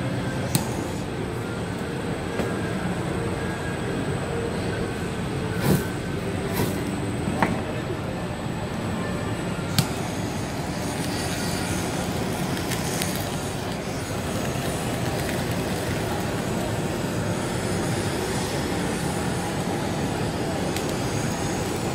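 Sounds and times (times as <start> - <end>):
blowtorch flame hissing: 0.3 - 1.2, 5.5 - 7.2, 9.6 - 21.9
blowtorch ignition click: 0.5 - 0.8, 5.6 - 6.9, 9.7 - 10.1.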